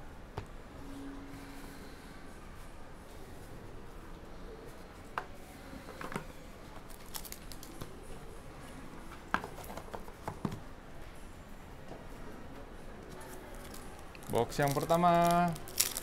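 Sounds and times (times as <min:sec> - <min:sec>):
cardboard clicks and knocks: 0:09.3 - 0:10.6.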